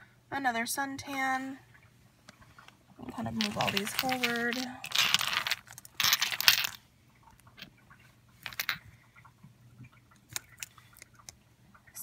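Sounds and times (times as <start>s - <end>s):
plastic bulbs clattering: 3.1s - 6.8s, 8.4s - 8.9s.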